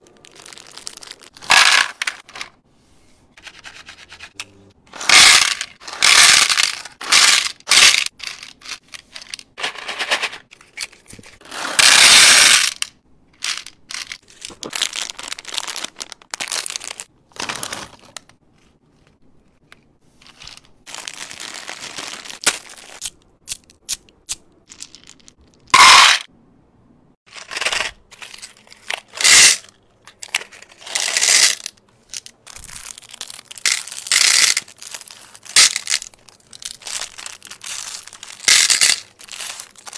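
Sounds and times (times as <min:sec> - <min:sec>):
wrappers crinkling and tearing: 0:00.0 - 0:01.5, 0:14.0 - 0:18.3, 0:20.4 - 0:23.0, 0:32.4 - 0:39.9
candy rattling into plastic tray: 0:00.0 - 0:02.6, 0:04.9 - 0:18.2, 0:27.3 - 0:39.9.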